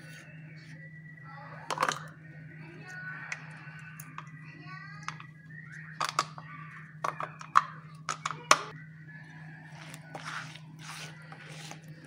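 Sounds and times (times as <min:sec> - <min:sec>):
hand squishing batter in bowl: 0:09.2 - 0:12.0.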